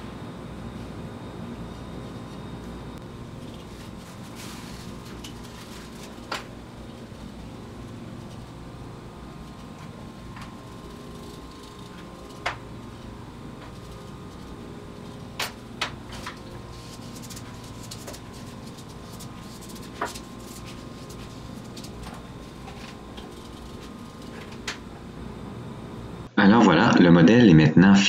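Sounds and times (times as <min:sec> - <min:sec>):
steady background hum: 0:00.0 - 0:28.0.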